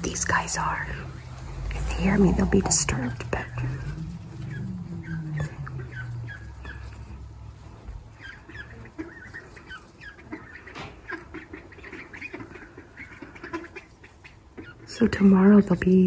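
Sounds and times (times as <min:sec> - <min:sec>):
low rumble: 0:00.0 - 0:09.0
ducklings peeping: 0:00.0 - 0:16.0.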